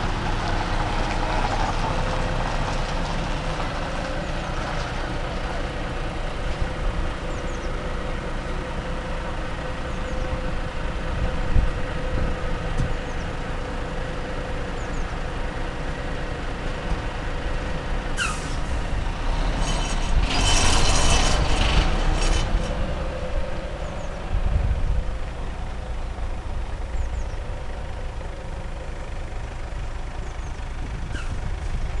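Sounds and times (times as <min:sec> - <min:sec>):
diesel lorry engine running: 0:00.0 - 0:32.0
air brake hiss: 0:18.2 - 0:18.8.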